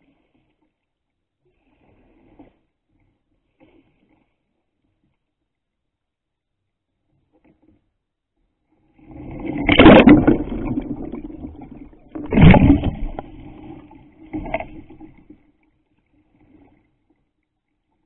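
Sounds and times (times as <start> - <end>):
water rushing and splashing: 9.1 - 15.4.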